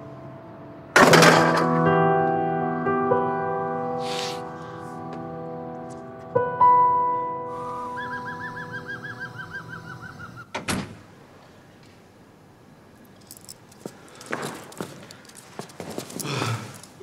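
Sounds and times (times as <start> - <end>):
bird trilling rapid chirps: 7.7 - 10.5.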